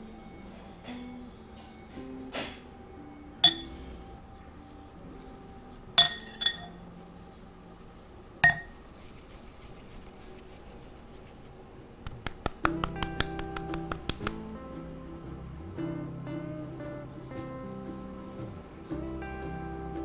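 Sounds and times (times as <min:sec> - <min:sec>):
metal utensils clinking on glass bowl: 0:03.4 - 0:03.8, 0:06.0 - 0:06.8.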